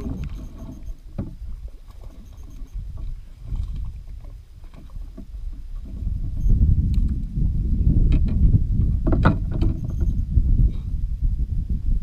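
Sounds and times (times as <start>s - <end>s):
water splashing and lapping: 0.0s - 7.1s
wind buffeting microphone: 0.0s - 12.0s.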